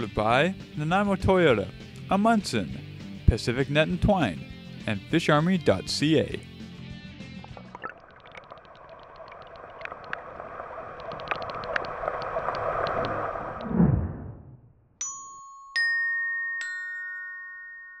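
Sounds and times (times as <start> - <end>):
bubbling underwater wash: 7.5 - 14.4
deep falling whoosh: 10.4 - 14.8
bell-like notes: 15.0 - 18.0.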